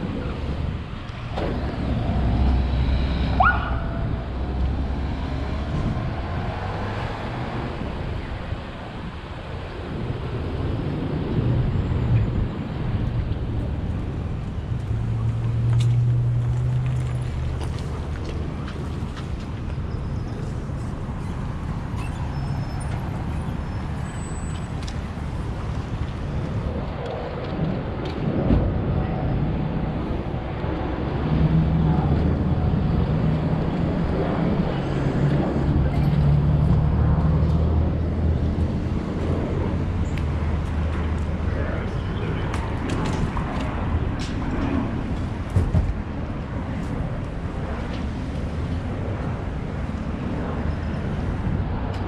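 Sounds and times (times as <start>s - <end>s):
vehicle engine rumble passing: 10.2s - 51.9s
short rising squeak: 22.0s - 24.7s.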